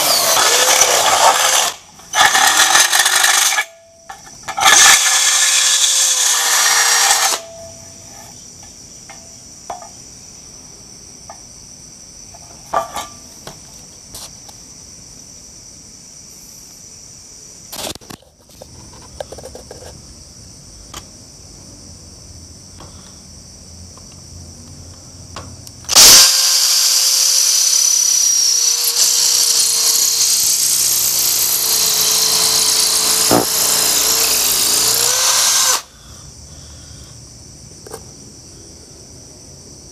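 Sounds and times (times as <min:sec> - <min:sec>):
cordless drill running: 0:00.0 - 0:03.6, 0:04.6 - 0:07.4, 0:25.9 - 0:35.8
drill drilling into masonry: 0:00.0 - 0:03.7, 0:04.5 - 0:07.5, 0:25.9 - 0:35.9
insects chirping: 0:00.0 - 0:39.9.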